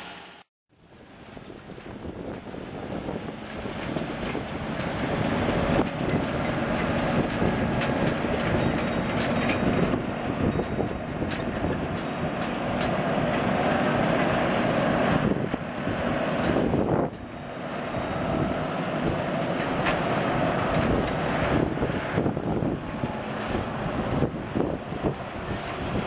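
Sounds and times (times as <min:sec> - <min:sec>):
diesel truck engine under load: 0:00.0 - 0:26.0
truck clanks and rattles: 0:01.0 - 0:26.0.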